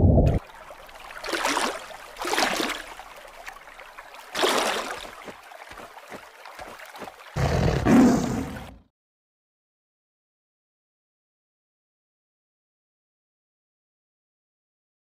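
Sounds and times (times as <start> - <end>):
tiger growls: 7.4 - 8.8
tiger roar: 7.4 - 8.8.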